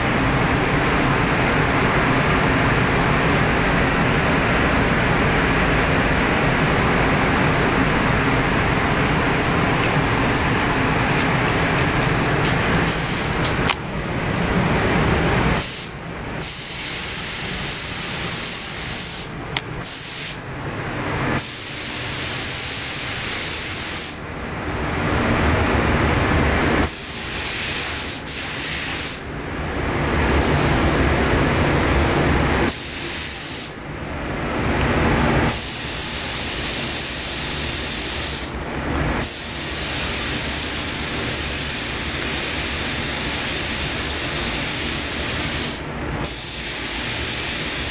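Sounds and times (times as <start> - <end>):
spray gun hissing: 15.6 - 20.4, 21.4 - 24.2, 26.8 - 29.3, 32.7 - 33.8, 35.5 - 38.5, 39.2 - 47.9.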